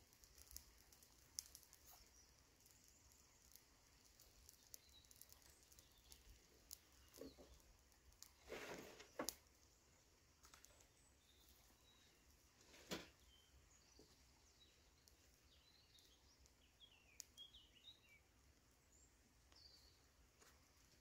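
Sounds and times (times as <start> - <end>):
faint clicks: 0.0 - 8.4, 14.0 - 17.6.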